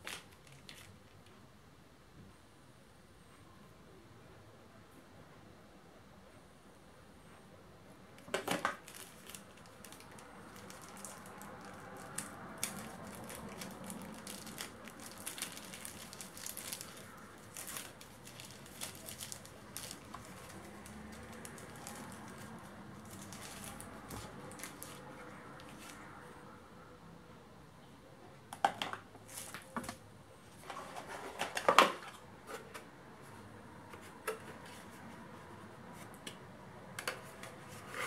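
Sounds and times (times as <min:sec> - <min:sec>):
plastic packaging crinkling: 0:00.0 - 0:01.0, 0:08.2 - 0:26.0.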